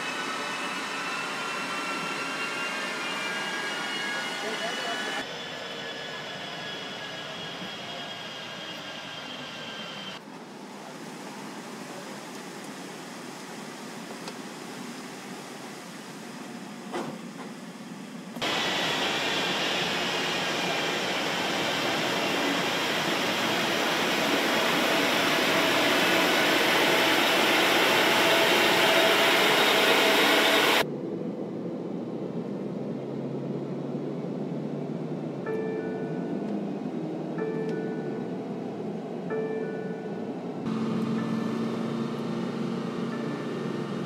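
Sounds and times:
tyres and drivetrain rushing: 0:18.4 - 0:30.9, 0:40.4 - 0:44.0.

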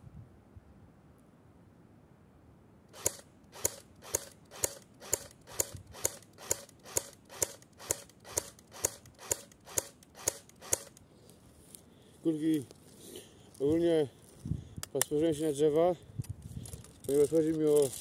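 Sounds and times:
airsoft gun shots: 0:02.9 - 0:11.0.

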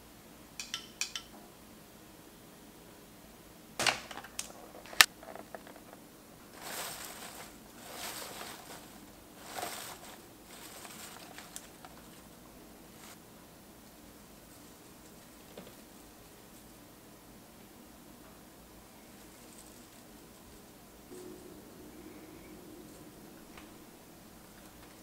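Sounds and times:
leaves rustling in a glass bowl: 0:06.5 - 0:13.2, 0:13.8 - 0:16.8, 0:18.9 - 0:21.1.

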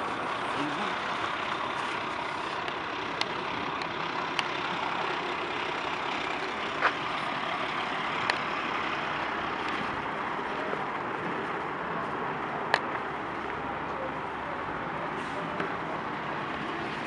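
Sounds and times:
distant diesel engine running: 0:00.0 - 0:12.0.

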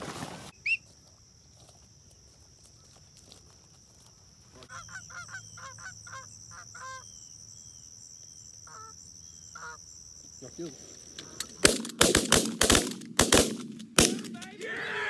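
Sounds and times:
high-pitched insect drone: 0:02.7 - 0:11.5
geese honking: 0:04.6 - 0:07.0.

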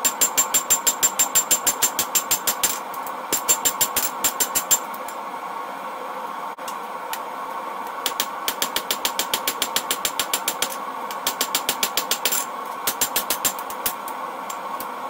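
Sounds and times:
hammer striking hot steel on anvil: 0:00.0 - 0:05.0, 0:08.0 - 0:14.0.

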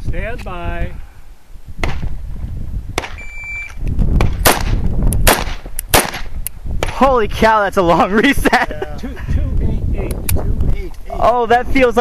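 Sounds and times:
shot timer beep: 0:03.2 - 0:03.8
pistol shots: 0:04.2 - 0:06.3.

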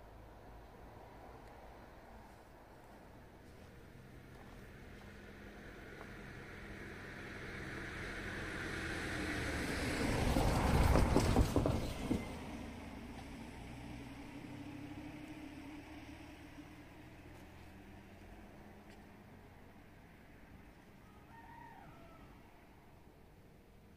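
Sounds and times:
van driving past: 0:03.0 - 0:23.9
wheels knocking over level crossing: 0:10.3 - 0:12.5.

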